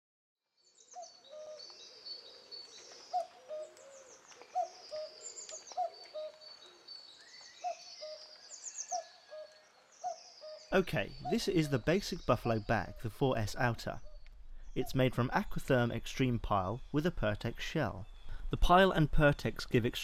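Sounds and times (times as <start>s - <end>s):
birds chirping and trilling: 0.6s - 20.0s.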